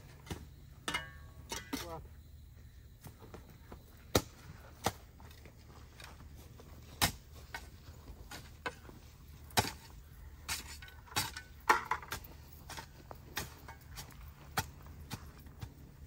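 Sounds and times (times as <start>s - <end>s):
shovel digging in soil and stones: 6.7s - 16.0s.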